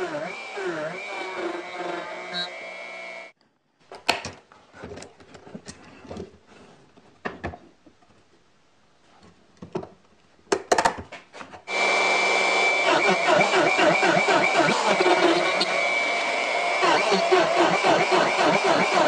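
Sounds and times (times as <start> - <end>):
machine motor whining: 11.7 - 19.0.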